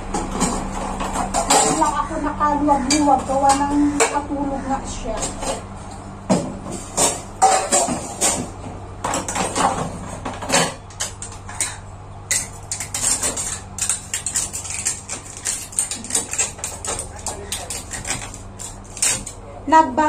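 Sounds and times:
dishes and utensils clinking: 0:07.0 - 0:08.5, 0:09.1 - 0:19.4.

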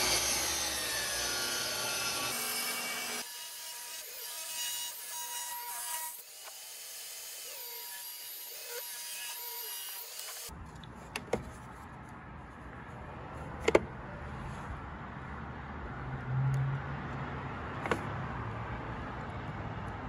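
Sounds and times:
table saw cutting wood: 0:00.0 - 0:10.5.

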